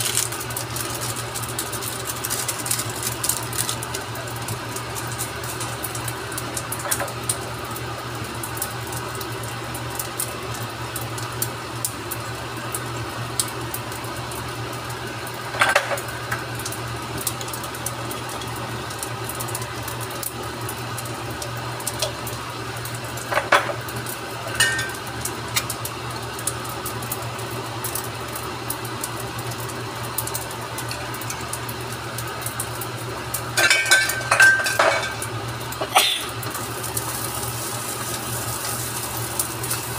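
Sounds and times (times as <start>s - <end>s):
utensils clinking on frying pan: 24.5s - 25.0s, 33.6s - 36.2s.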